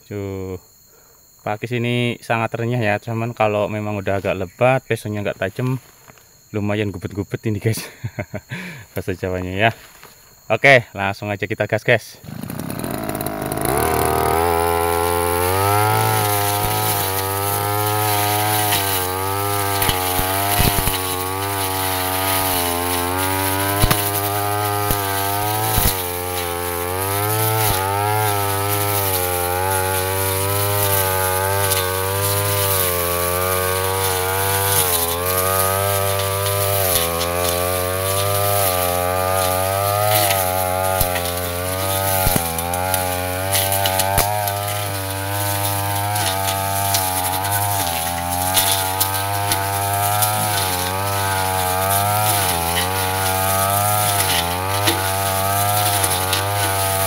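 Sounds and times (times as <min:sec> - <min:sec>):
brush cutter engine running: 0:12.2 - 0:57.0.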